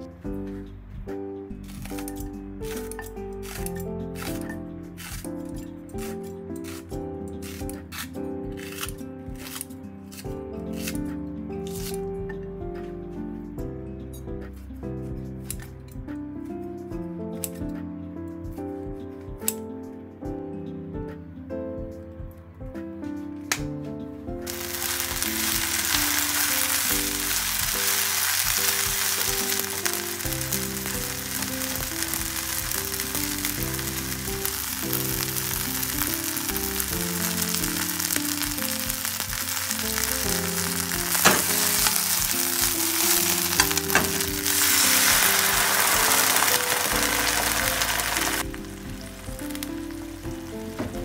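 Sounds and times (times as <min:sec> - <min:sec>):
food sizzling in frying pan: 0:24.5 - 0:51.0.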